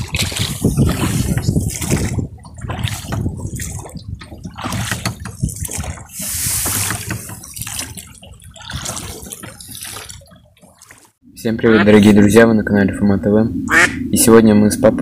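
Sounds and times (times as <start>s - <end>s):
oar splashing in water: 0.0s - 11.2s.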